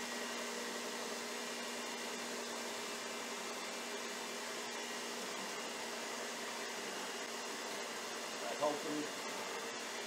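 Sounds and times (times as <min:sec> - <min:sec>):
stand mixer whirring: 0:00.0 - 0:10.0.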